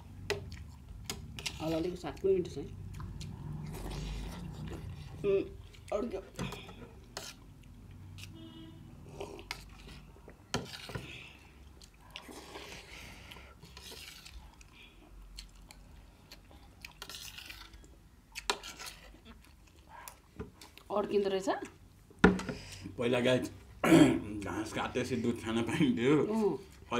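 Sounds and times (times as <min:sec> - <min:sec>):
soft wet mixing: 0:00.0 - 0:26.9.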